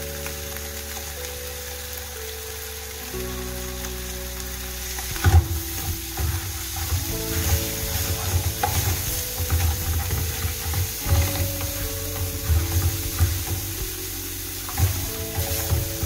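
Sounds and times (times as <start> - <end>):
food sizzling in a pan: 0.0 - 16.0
wooden spoon scraping a pan: 4.8 - 16.0.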